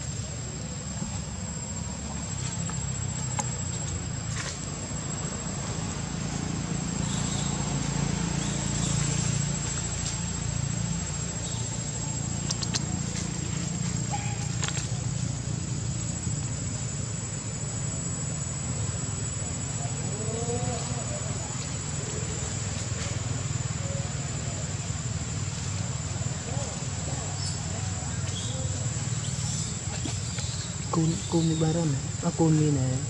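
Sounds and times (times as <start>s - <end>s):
high-pitched insect drone: 0.0s - 22.3s
brief clicks: 12.4s - 12.9s.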